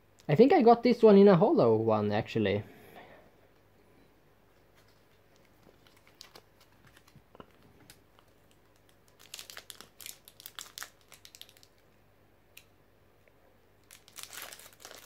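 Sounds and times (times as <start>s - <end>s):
foil wrapper crinkling and tearing: 4.8s - 11.8s, 13.8s - 15.0s.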